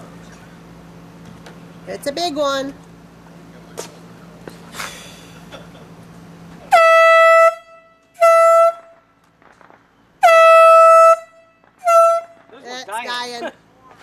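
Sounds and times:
air horn blasts: 6.7s - 9.1s, 10.2s - 12.5s.

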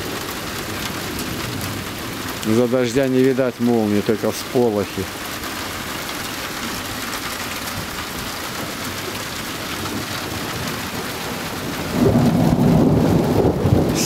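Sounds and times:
heavy rain falling: 0.0s - 14.0s
thunder rumbling: 7.6s - 14.0s.

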